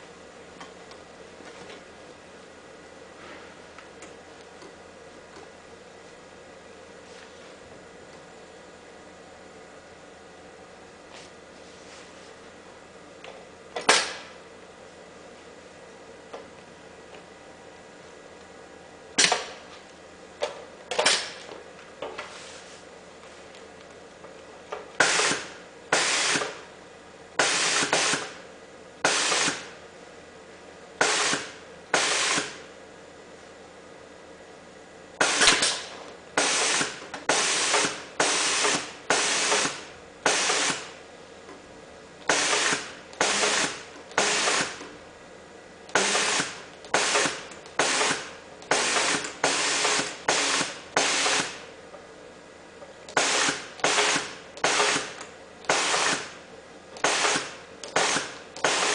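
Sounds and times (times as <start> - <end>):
industrial sewing machine bursts: 36.4 - 40.9, 45.9 - 51.6, 53.1 - 56.3, 57.0 - 58.9.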